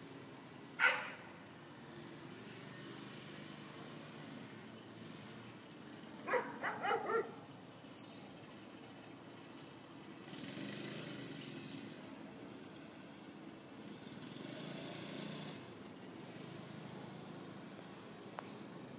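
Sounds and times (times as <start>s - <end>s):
vehicle passing: 0.0s - 7.7s, 8.8s - 18.9s
dog barking: 0.8s - 1.2s, 6.3s - 7.4s.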